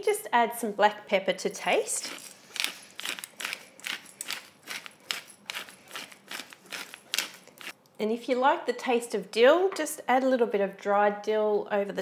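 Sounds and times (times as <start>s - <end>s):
pepper mill grinding: 1.6s - 7.8s.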